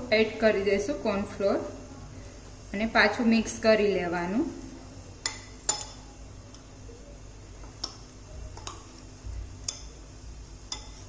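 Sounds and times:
metal spoon clinking against glass bowl: 5.2 - 6.0, 10.7 - 11.0.

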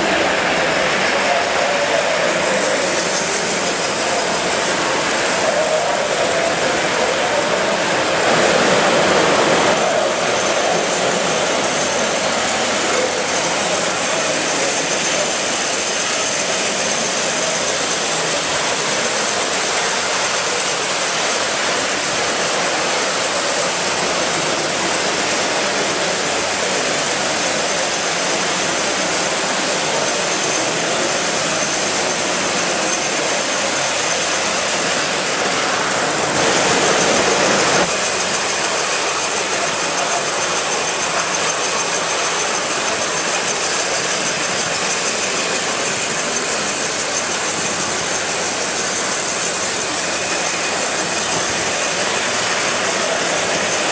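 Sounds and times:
model steam locomotive hissing: 0.0 - 53.9.

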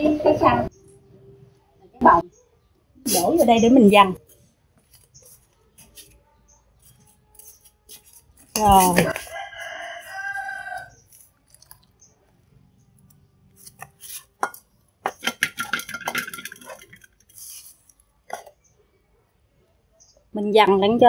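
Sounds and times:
rooster crowing: 9.0 - 11.0
wok knocking and clinking: 14.4 - 17.1.

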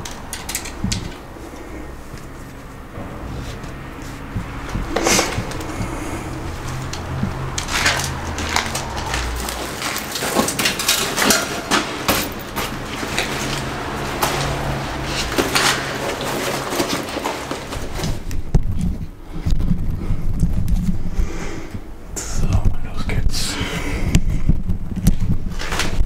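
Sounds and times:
knocks and scrapes of handling gear: 0.0 - 21.1
heavy thumps: 0.8 - 10.6.

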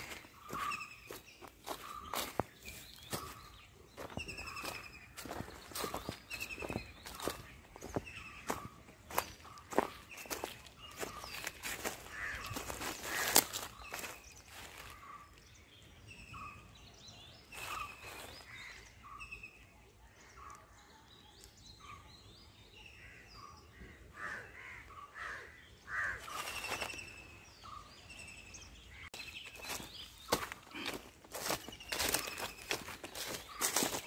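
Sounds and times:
footsteps on dry leaves: 0.0 - 15.2, 17.5 - 18.6, 26.2 - 27.2, 29.2 - 34.0
birds chirping and trilling: 0.0 - 34.0.

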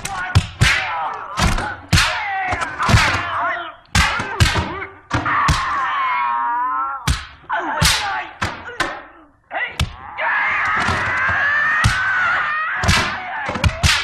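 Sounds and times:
shouted battle cries: 0.0 - 14.0
punch and kick impacts: 7.1 - 8.6.

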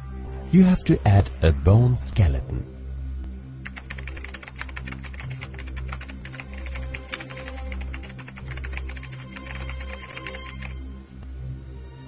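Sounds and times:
background music with low bass: 0.0 - 12.0
keyboard typing: 3.6 - 10.8.

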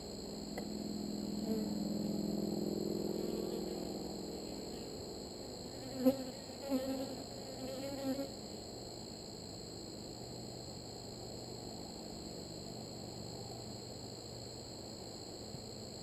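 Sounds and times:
bees buzzing: 5.8 - 8.3.

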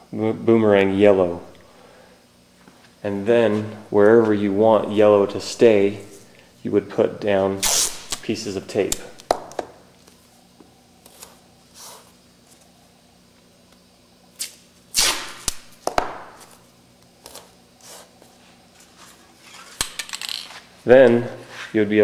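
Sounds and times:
masking tape tearing: 7.6 - 8.2, 14.4 - 16.6.

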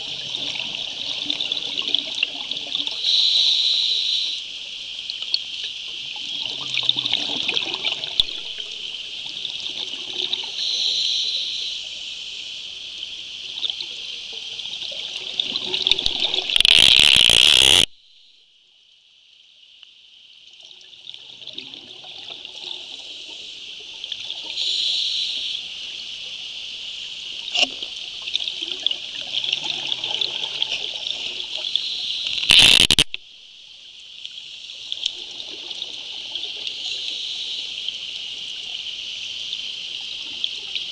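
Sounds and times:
steady high hiss: 16.0 - 19.3, 31.4 - 35.1, 36.6 - 40.7.

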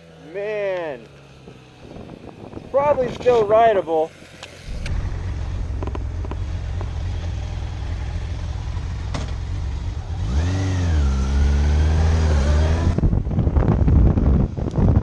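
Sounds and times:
motorcycle engine idling: 4.2 - 10.2.

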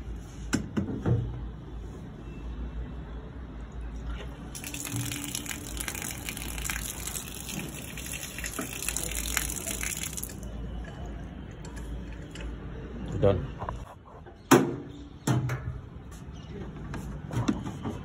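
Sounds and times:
water gushing through pipe and tap: 4.6 - 10.5.

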